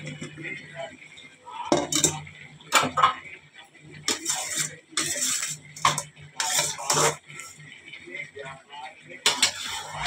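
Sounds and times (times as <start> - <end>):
metal utensil scraping a pan: 4.0 - 7.7, 9.2 - 10.0.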